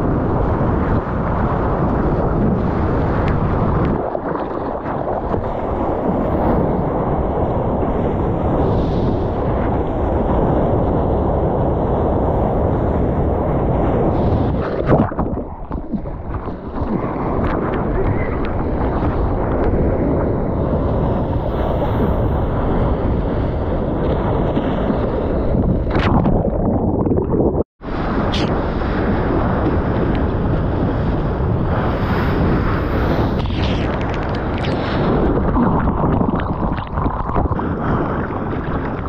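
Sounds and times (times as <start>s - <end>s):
rushing surf: 0.0s - 39.0s
wind on microphone: 0.0s - 39.0s
sharp water splash: 14.5s - 18.9s, 24.5s - 27.6s, 31.9s - 39.0s.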